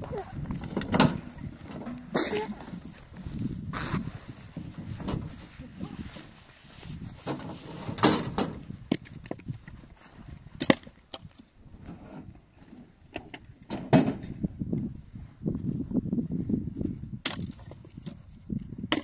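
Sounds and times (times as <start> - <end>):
firewood knocking on stony ground: 17.2 - 18.2.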